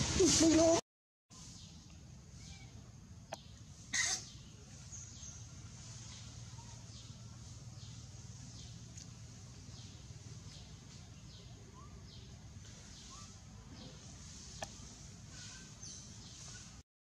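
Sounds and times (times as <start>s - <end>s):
steady low hum: 1.6s - 16.8s.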